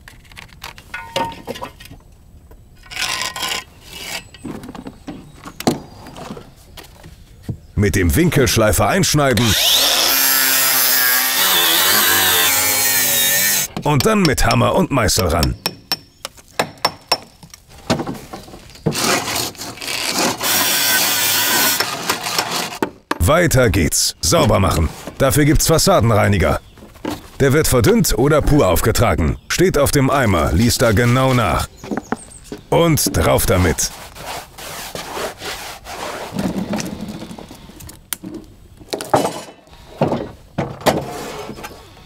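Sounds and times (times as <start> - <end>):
pencil scratching on render: 33.1 - 36.4.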